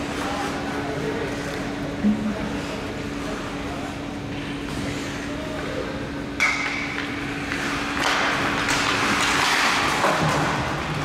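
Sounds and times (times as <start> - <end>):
low rink hum: 0.0 - 11.0
hockey stick hitting puck: 6.4 - 11.0
skates scraping ice: 7.4 - 11.0.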